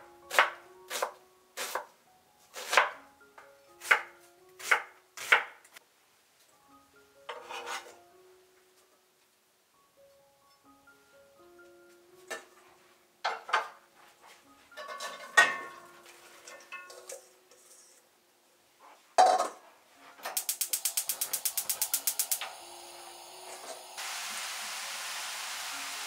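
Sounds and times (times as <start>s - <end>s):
pan and bowl clattering: 14.8s - 17.9s
gas igniter ticking: 20.4s - 24.0s
gas burner hissing: 20.4s - 26.0s.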